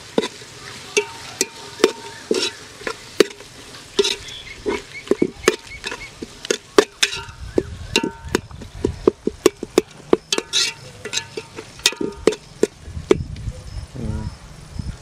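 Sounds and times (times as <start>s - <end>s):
metal spoon clinking in metal pot: 1.0s - 3.4s, 4.0s - 7.4s, 8.0s - 8.4s, 9.4s - 12.7s.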